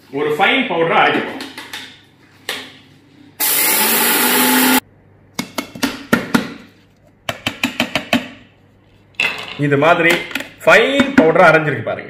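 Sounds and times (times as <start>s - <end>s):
mixer grinder running: 3.4s - 4.8s.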